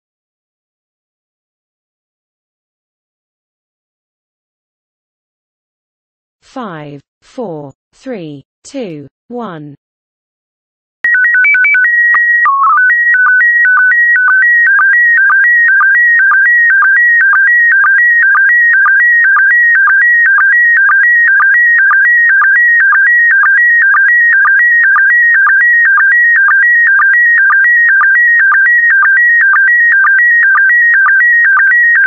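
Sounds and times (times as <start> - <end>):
stepped electronic beeps: 11.1 - 32.0.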